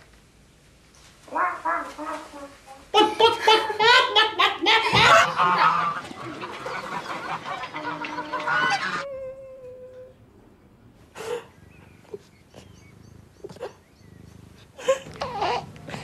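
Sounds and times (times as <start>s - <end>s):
geese honking: 3.4s - 9.1s.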